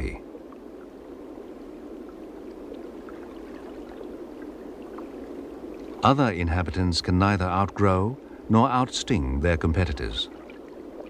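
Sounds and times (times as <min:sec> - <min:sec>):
faint scattered ticks: 0:00.0 - 0:06.2
underwater rush of water: 0:00.0 - 0:06.2, 0:10.2 - 0:11.0.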